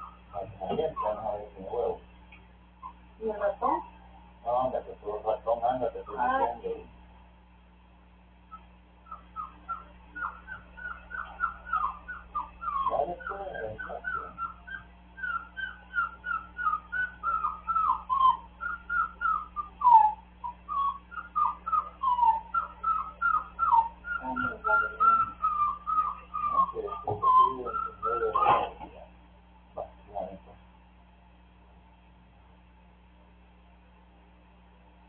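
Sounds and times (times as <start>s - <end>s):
small dog whimpering: 0.0s - 1.5s, 6.1s - 6.6s, 8.5s - 28.9s
low rough dog vocal sounds: 21.4s - 29.1s.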